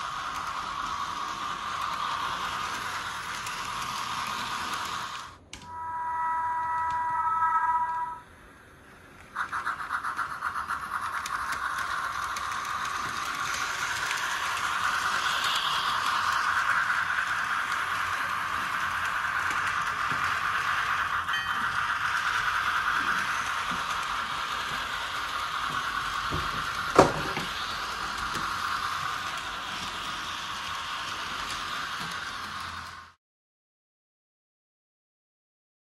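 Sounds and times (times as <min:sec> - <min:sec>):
model train rattle and whir: 0:00.0 - 0:05.6, 0:08.4 - 0:33.2
rhythmic steam chuffing: 0:00.0 - 0:33.2
chime whistle: 0:05.6 - 0:08.3, 0:21.2 - 0:23.3.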